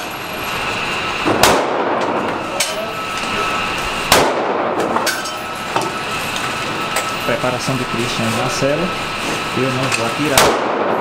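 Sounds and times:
fainter gunshot cracks: 0:01.3 - 0:02.0, 0:04.1 - 0:04.7
pistol shots indoors: 0:01.3 - 0:02.3, 0:04.1 - 0:05.1, 0:10.4 - 0:11.0.

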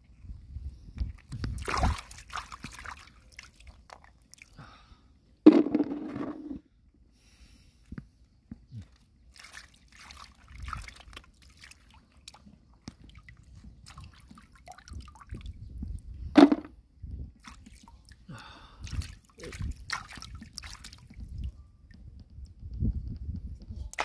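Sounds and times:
mud and water squelching: 0:01.2 - 0:04.6, 0:08.8 - 0:15.4, 0:17.4 - 0:18.2, 0:18.8 - 0:21.2.

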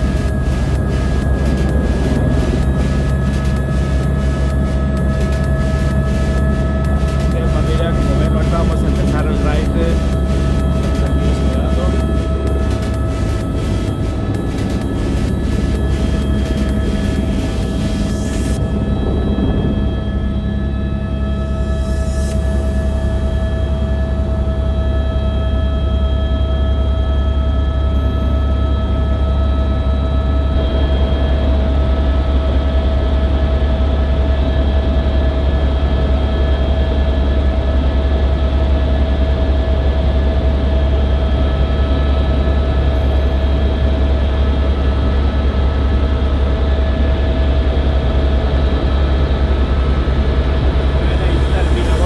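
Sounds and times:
rushing noise: 0:00.0 - 0:23.8, 0:50.2 - 0:52.0
helicopter rotor drone: 0:00.0 - 0:52.0
steady whine: 0:00.0 - 0:52.0.

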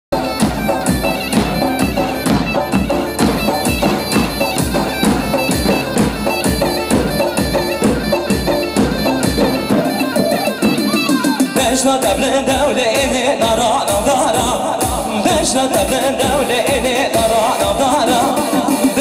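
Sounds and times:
shrill wind instrument melody: 0:00.1 - 0:12.5
bass drum beating: 0:00.1 - 0:18.4.

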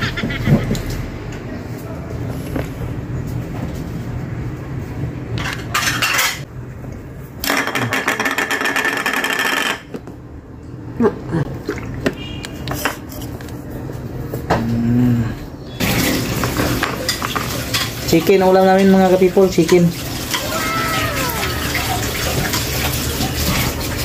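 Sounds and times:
dishes and utensils clinking: 0:05.4 - 0:06.5, 0:12.6 - 0:13.5, 0:15.8 - 0:24.0.

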